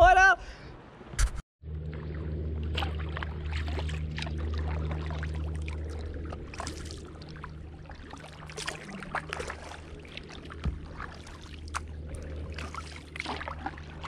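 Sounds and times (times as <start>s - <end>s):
steady low hum: 1.6s - 14.0s
paddle water splashing: 1.7s - 14.0s.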